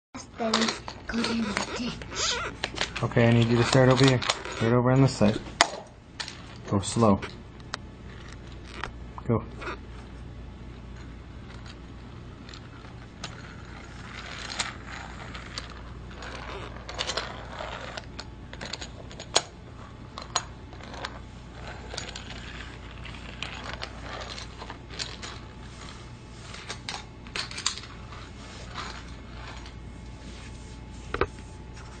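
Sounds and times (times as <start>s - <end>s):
toy train rattling on plastic track: 2.9s - 4.7s, 12.5s - 19.5s.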